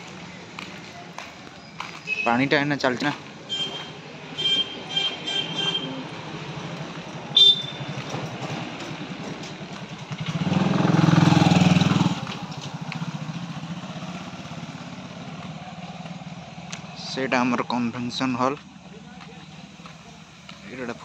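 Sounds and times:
small motorcycle engine running: 7.6 - 16.4.

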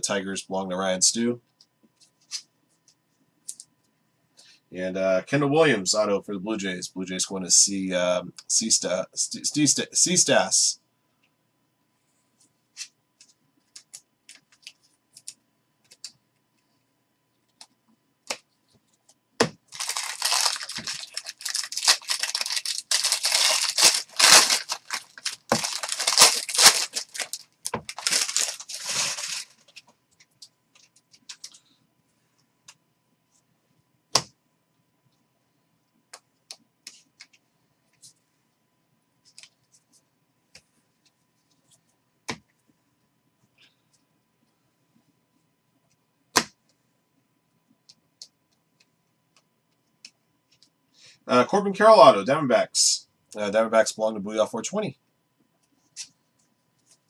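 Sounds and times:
foil wrapper tearing and crinkling: 19.7 - 29.8.

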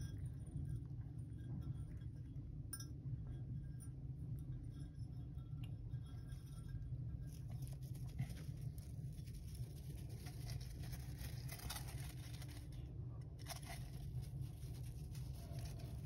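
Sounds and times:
steady low rumble: 0.0 - 16.0
hamster nibbling seeds: 4.4 - 16.0.

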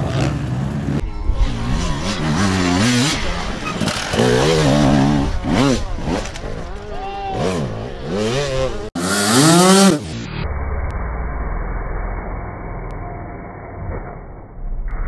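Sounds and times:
dirt bike engine revving: 0.0 - 10.3.

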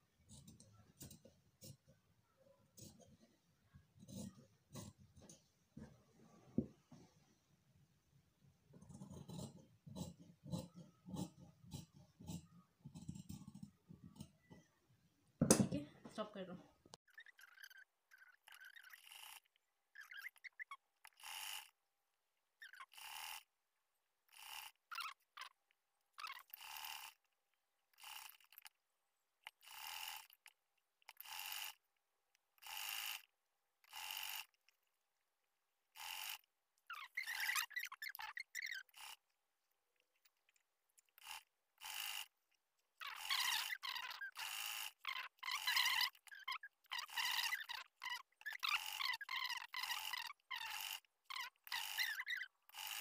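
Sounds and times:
scissors snipping fabric: 8.8 - 14.4
sewing machine stitching: 43.0 - 53.0.

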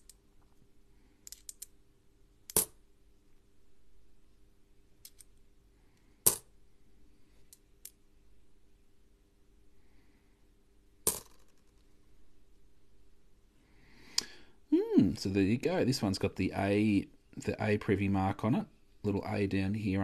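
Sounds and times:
coins clicking together: 1.2 - 1.7, 2.5 - 2.8, 5.0 - 5.4, 11.1 - 11.7.

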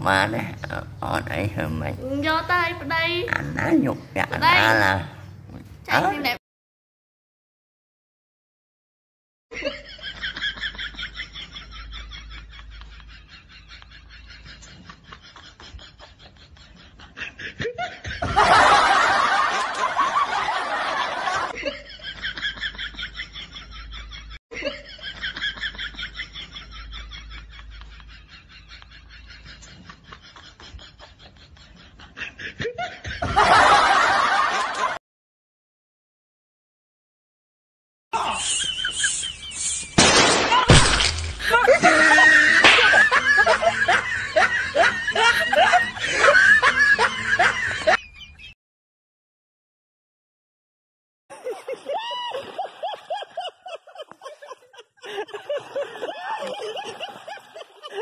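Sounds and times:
person snickering: 38.2 - 40.0, 41.4 - 43.8
person laughing: 38.2 - 48.6, 51.3 - 58.0.

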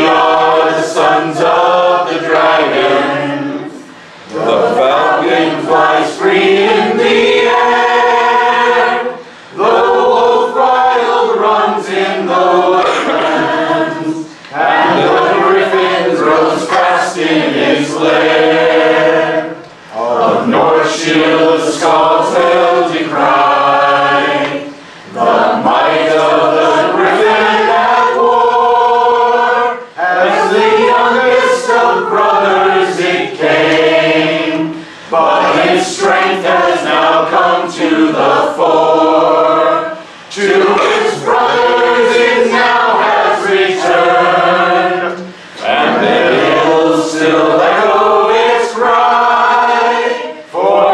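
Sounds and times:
group singing unaccompanied: 0.0 - 50.9.

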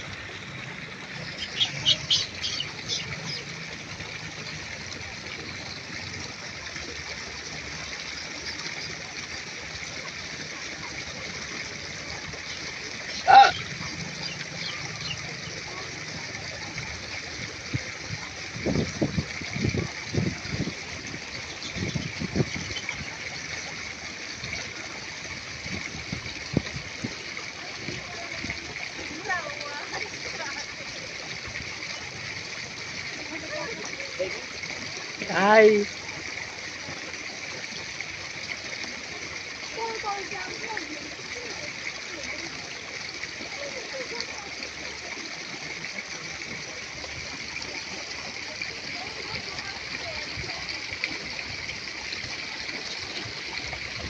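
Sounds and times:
rushing outdoor background noise: 0.0 - 38.3
birds chirping: 1.2 - 3.5, 12.4 - 15.6.

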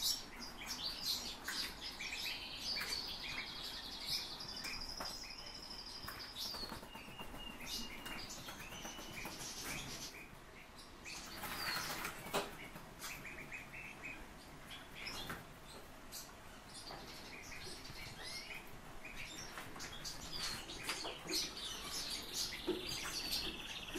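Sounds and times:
bird chirps and calls: 0.0 - 23.9
fast rattling bird trill: 6.4 - 10.1.

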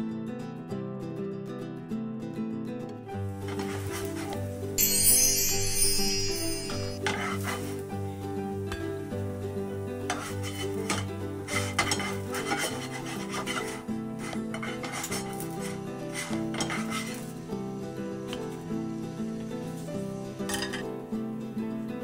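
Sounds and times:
background music: 0.0 - 22.0
spatula clinking and scraping: 3.4 - 7.9, 10.1 - 17.5, 19.7 - 20.9.

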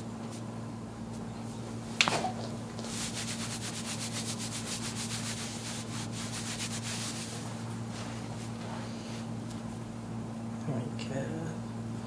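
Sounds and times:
hands rubbing over fabric: 2.0 - 9.7.

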